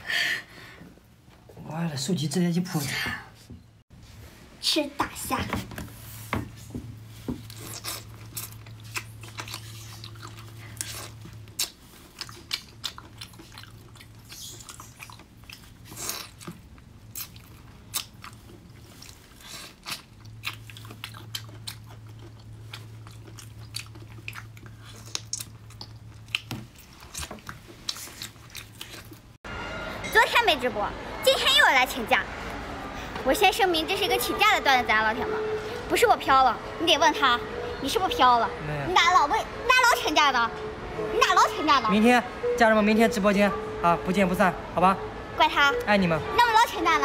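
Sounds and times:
low steady hum: 16.8s - 47.0s.

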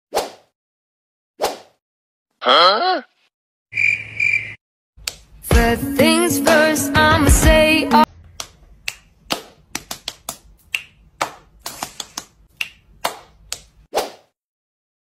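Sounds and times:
finger snaps: 8.4s - 13.7s
hand claps: 8.4s - 13.8s.

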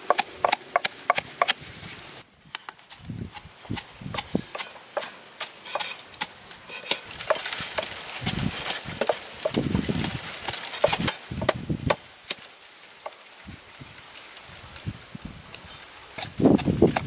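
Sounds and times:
cleaver chopping on wooden block: 0.0s - 1.6s
pestle pounding in wooden mortar: 0.0s - 1.6s, 2.9s - 10.2s, 10.8s - 12.0s, 16.2s - 17.0s.

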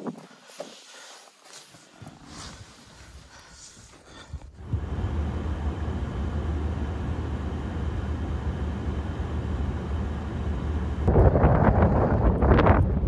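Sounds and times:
truck engine idling: 4.6s - 11.1s
wind buffeting microphone: 11.1s - 13.0s.

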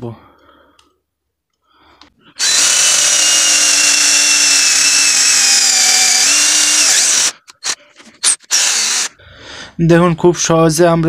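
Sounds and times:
cordless drill boring into wood: 2.4s - 9.2s.

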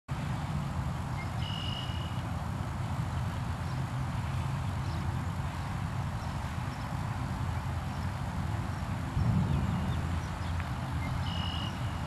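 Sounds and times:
wind buffeting microphone: 4.7s - 12.0s.

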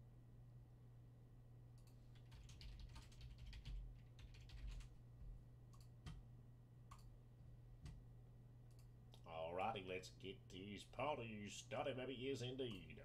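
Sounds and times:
typing on a computer keyboard: 1.8s - 4.9s.

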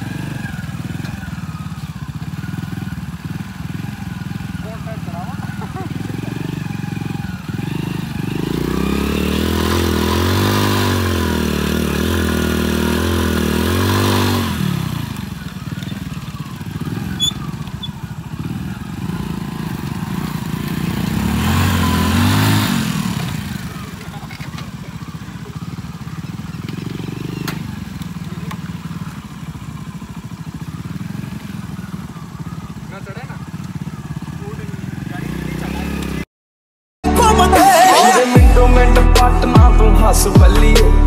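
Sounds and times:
motorcycle engines revving: 0.0s - 36.3s.

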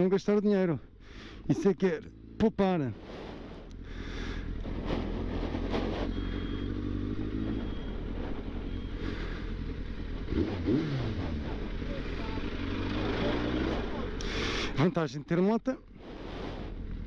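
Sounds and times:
motorcycle engine running: 3.4s - 14.2s.

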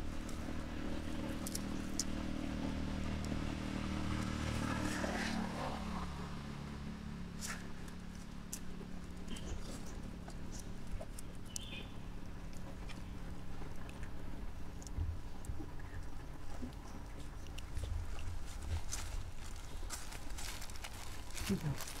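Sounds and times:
vehicle engine passing by: 0.0s - 10.6s.

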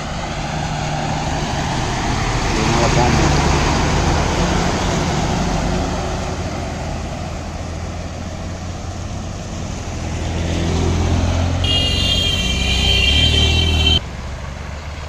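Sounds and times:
water splashing around wheels: 0.0s - 11.9s
truck engine hum: 0.0s - 15.0s.

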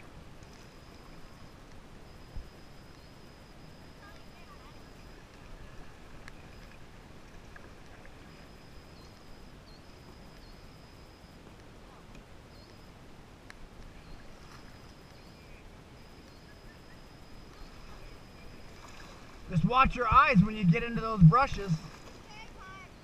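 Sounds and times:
paddles dipping and dripping: 17.1s - 22.6s
water rushing: 17.8s - 22.3s
wind noise: 18.7s - 22.3s.

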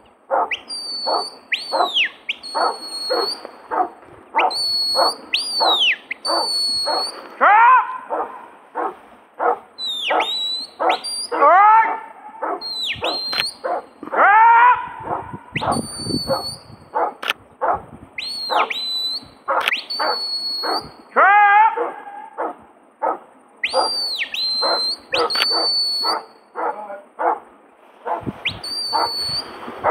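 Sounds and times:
dog barking: 0.3s - 17.8s, 18.5s - 18.8s, 19.5s - 24.0s, 24.6s - 29.9s
high shepherd's whistle: 0.5s - 3.8s, 4.4s - 7.3s, 9.8s - 11.4s, 12.6s - 13.8s, 15.6s - 16.8s, 18.2s - 21.0s, 23.6s - 26.4s, 28.2s - 29.9s.

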